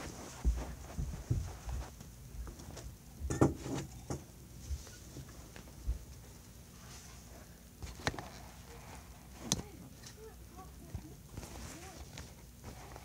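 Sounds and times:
handling noise on phone microphone: 0.0s - 2.9s, 11.3s - 13.0s.

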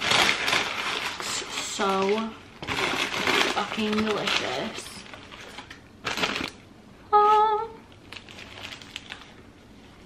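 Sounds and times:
paper bag crinkling: 0.0s - 6.6s, 7.9s - 9.5s
person humming: 7.1s - 7.8s.

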